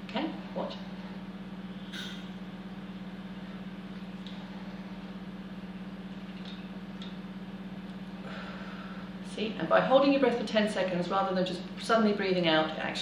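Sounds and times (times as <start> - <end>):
steady low hum: 0.0 - 13.0
gentle breathing in: 8.2 - 9.2.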